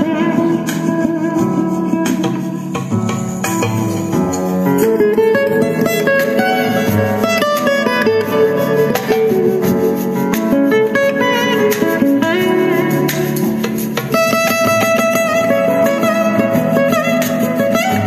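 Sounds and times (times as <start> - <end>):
plucked guitar music over speaker: 0.0 - 18.0.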